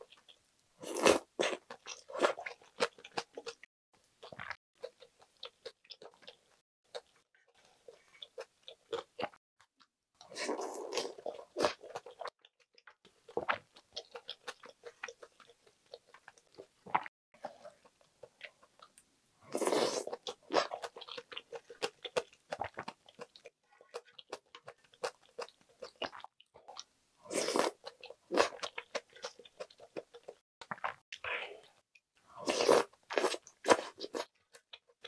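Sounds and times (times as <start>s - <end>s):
close chewing with mouth clicks: 0.0s - 7.2s, 10.2s - 31.8s.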